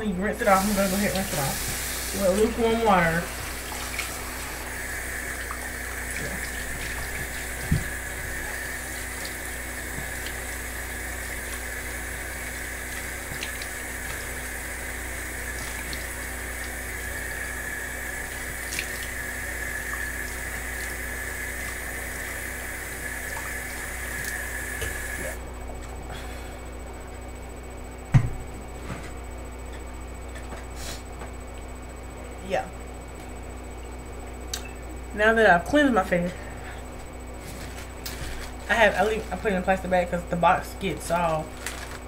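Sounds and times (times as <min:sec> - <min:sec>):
faucet running into a sink: 0:00.4 - 0:14.5, 0:15.2 - 0:25.4
water splashing on face: 0:03.3 - 0:10.6, 0:12.8 - 0:14.5, 0:18.2 - 0:25.3.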